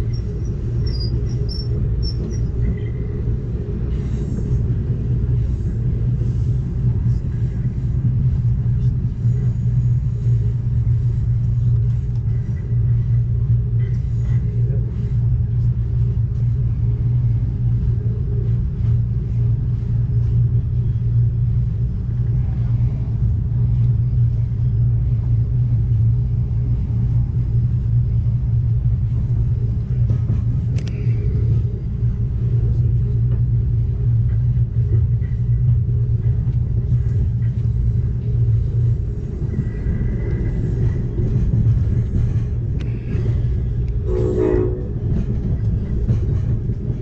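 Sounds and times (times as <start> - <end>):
train rumbling: 0.0 - 47.0.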